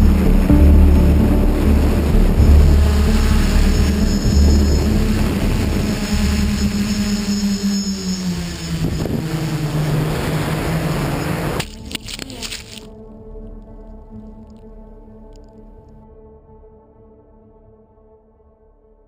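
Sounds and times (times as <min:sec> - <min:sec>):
gusty wind rumble: 0:00.0 - 0:11.9
electric motor and propeller: 0:02.0 - 0:12.8.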